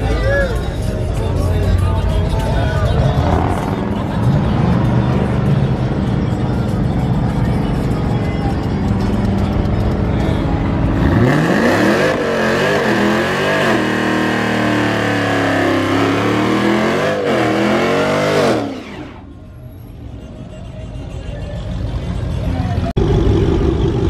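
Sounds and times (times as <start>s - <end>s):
car engine revving: 2.3s - 19.4s.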